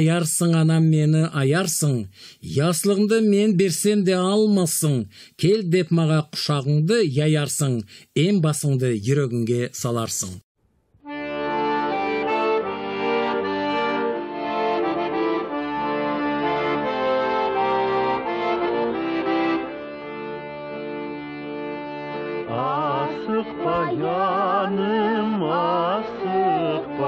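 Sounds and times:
accordion music: 11.0s - 27.0s
person singing with vibrato: 22.4s - 27.0s.

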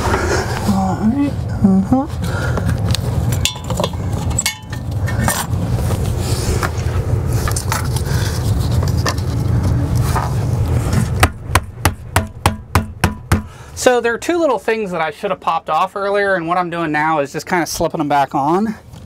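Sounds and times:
steady low hum: 0.0s - 17.4s
sharp evenly spaced knocks: 11.2s - 13.6s.

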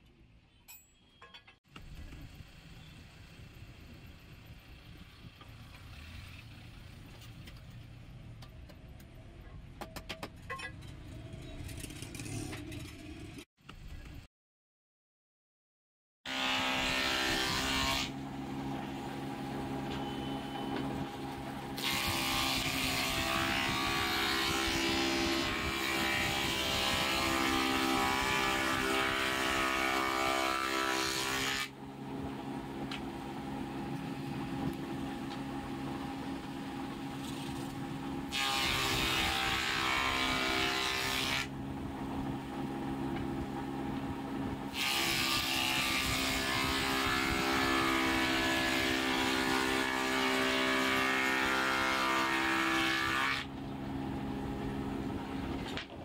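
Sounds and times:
cutter shaping wood board: 16.3s - 19.1s, 19.9s - 31.8s, 38.3s - 41.5s, 44.7s - 53.5s.

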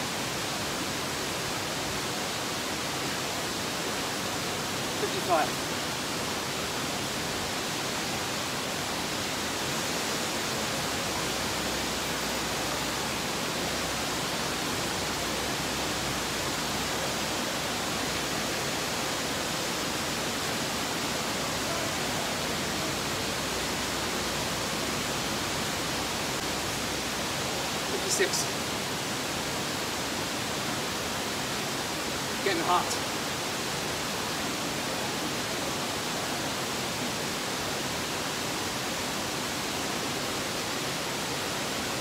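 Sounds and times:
steady hiss: 0.0s - 42.0s.

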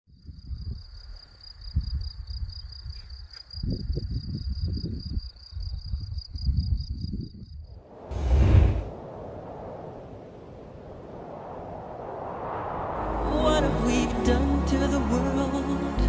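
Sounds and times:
insect chirping: 0.2s - 8.1s
low rumble: 7.8s - 14.4s.

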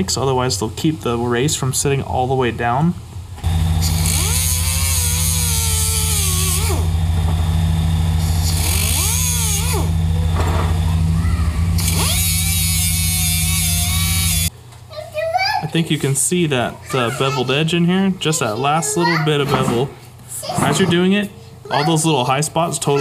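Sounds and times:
steady low hum: 0.0s - 14.6s
air die grinder whining: 3.4s - 14.5s
high hiss: 3.4s - 14.5s.

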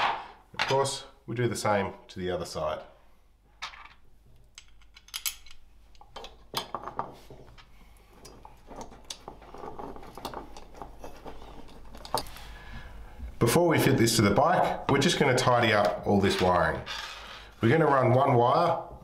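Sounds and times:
metal parts clicking and clinking: 3.6s - 12.4s.

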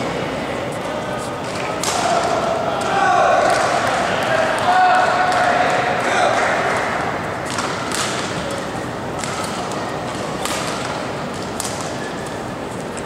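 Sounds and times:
steady hall noise: 0.0s - 13.0s
rackets striking shuttlecock: 1.4s - 4.0s, 7.4s - 12.2s.

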